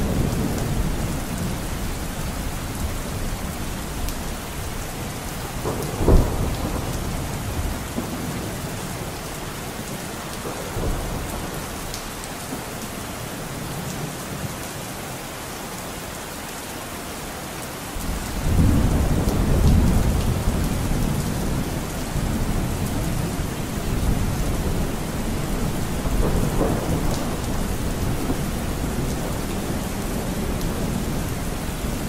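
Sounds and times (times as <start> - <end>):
low thunder rumble: 0.0 - 9.1, 18.0 - 32.0
steady rain: 0.0 - 32.0
thunder clap: 5.4 - 8.4, 18.0 - 31.3.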